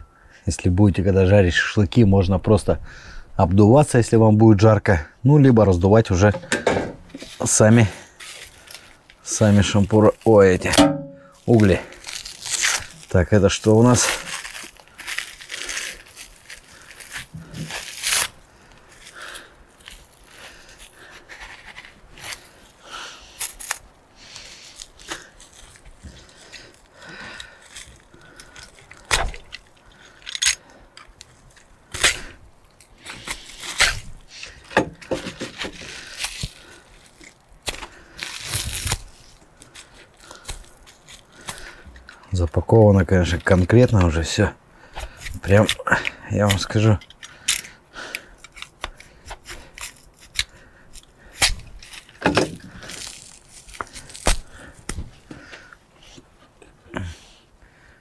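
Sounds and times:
packaging tearing and crinkling: 7.1s - 10.8s, 11.4s - 41.8s, 45.0s - 55.1s.

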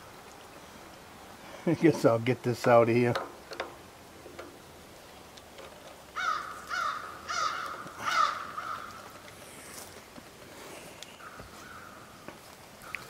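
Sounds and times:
bird cawing: 6.1s - 9.8s, 10.8s - 13.0s.

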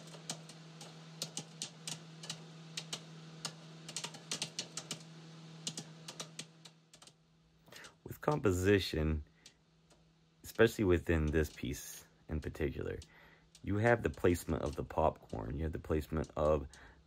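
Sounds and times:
sharp clicks: 9.4s - 16.8s.

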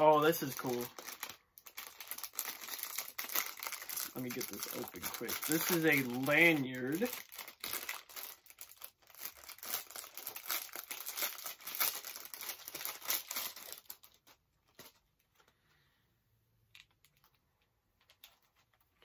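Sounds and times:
plastic wrapper crinkling and tearing: 0.0s - 15.6s, 18.0s - 19.0s.

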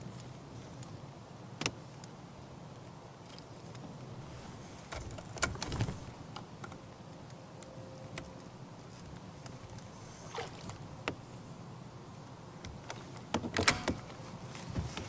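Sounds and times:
steady low hum: 0.0s - 15.0s
clicks and knocks of handling motor: 12.6s - 15.0s.

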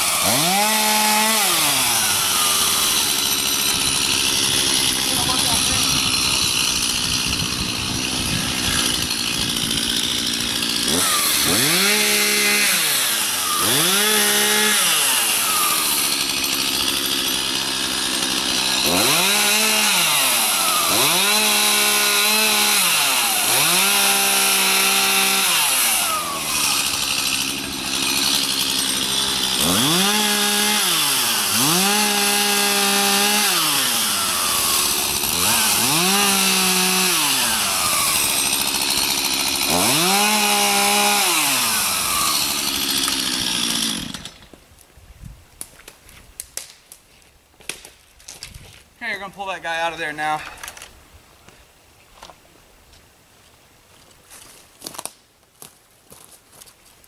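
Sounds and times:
chainsaw revving and cutting: 0.0s - 44.5s.

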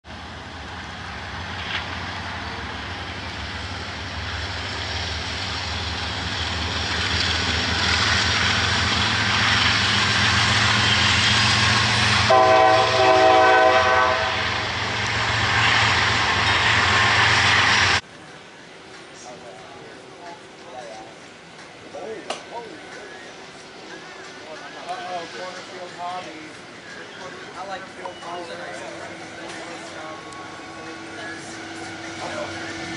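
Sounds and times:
locomotive engine drone: 0.0s - 32.9s
wheels rumbling on rails: 0.0s - 32.9s
locomotive horn: 12.3s - 14.7s.

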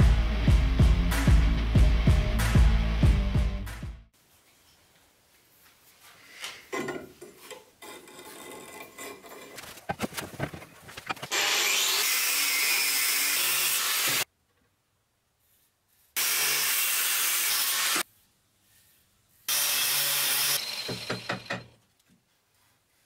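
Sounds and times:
angle grinder cutting steel: 11.2s - 14.2s, 16.2s - 18.0s, 19.5s - 21.7s.

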